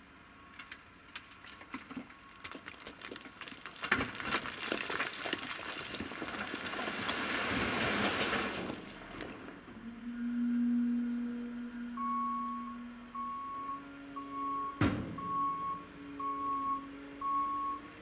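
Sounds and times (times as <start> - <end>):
stones clattering: 1.6 - 8.7
rubble sliding out rattling: 1.6 - 9.8.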